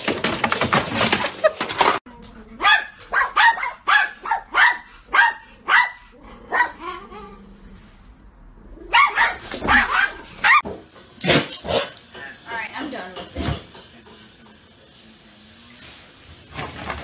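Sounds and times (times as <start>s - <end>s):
dog barking: 2.6s - 7.1s, 8.9s - 10.6s.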